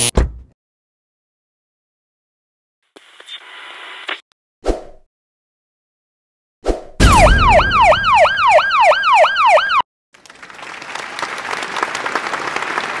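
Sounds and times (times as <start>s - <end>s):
alarm siren wailing: 7.0s - 9.9s.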